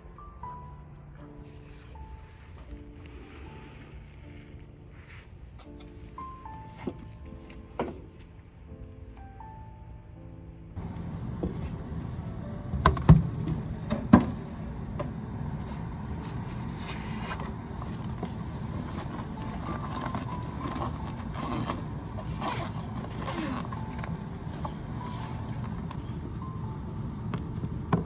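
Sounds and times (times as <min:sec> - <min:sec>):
low indoor room rumble: 0:00.0 - 0:28.0
backpack rustling and clicking: 0:16.8 - 0:26.1.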